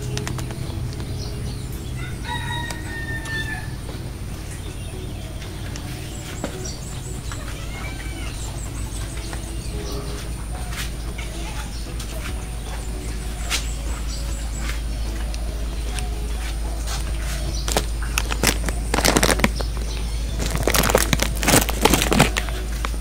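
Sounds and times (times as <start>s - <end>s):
steady low hum: 0.0s - 23.0s
rising and falling animal call: 1.0s - 16.2s
long animal call: 1.2s - 16.7s.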